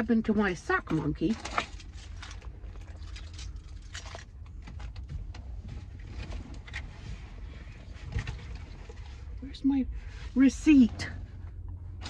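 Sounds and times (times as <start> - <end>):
rummaging through shopping bags: 0.9 - 9.4.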